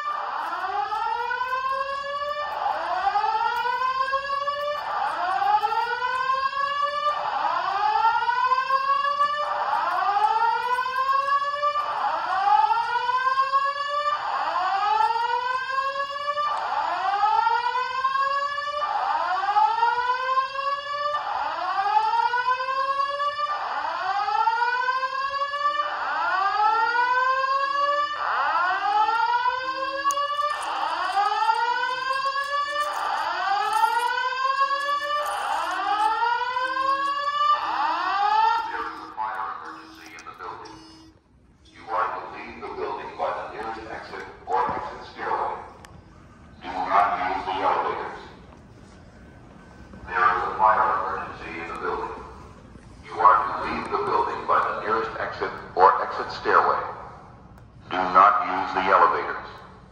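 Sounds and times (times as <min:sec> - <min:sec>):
fire alarm whoop tone: 0:00.0 - 0:42.0.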